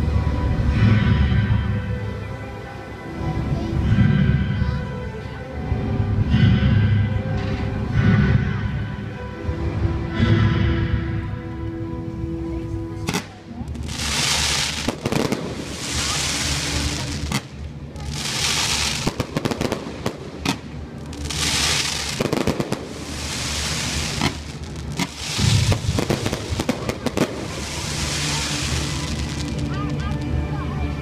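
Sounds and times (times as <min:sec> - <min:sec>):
music with held notes: 0:00.0 - 0:31.0
fireworks bangs: 0:13.1 - 0:29.7
fireworks crackling: 0:13.1 - 0:30.6.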